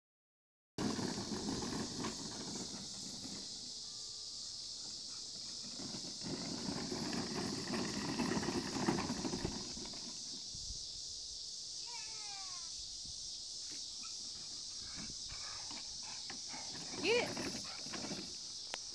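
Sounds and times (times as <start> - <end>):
wagon rattling over grass: 0.8 - 3.8, 4.6 - 10.6, 14.3 - 18.9.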